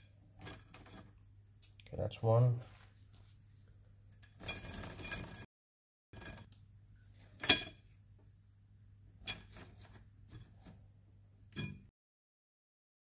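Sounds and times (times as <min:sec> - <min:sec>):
window blind rustling and scraping: 0:09.3 - 0:10.8.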